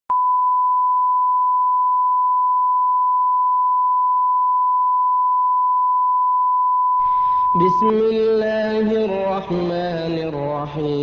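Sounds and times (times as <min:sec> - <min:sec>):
steady pure test tone: 0:00.1 - 0:08.8.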